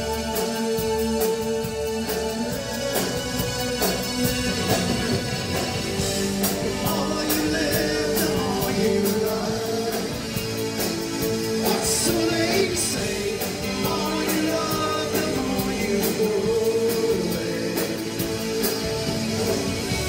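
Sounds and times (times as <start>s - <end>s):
drum kit: 0.0s - 20.0s
electric guitar: 0.0s - 20.0s
person singing: 6.2s - 18.8s.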